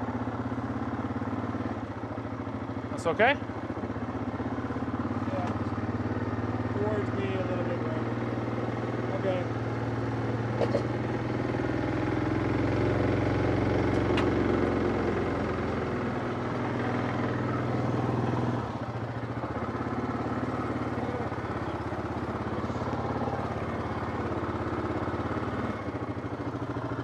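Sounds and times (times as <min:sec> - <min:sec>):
atv engine at low throttle: 0:00.0 - 0:27.0.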